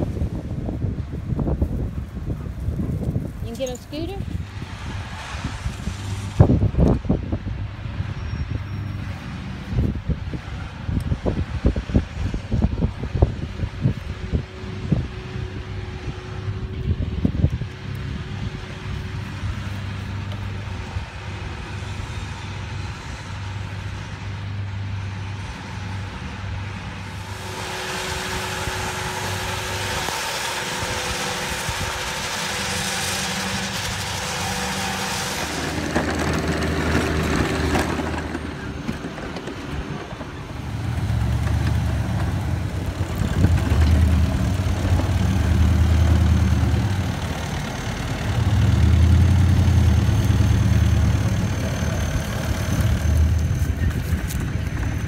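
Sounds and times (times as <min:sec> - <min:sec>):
stump grinder engine running: 0:27.1 - 0:55.0
cutter wheel grinding stump: 0:27.2 - 0:55.0.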